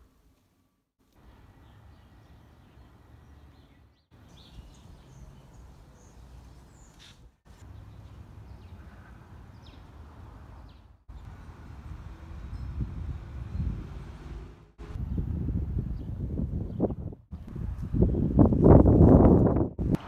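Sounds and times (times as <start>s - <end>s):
small birds chirping: 1.6s - 11.6s.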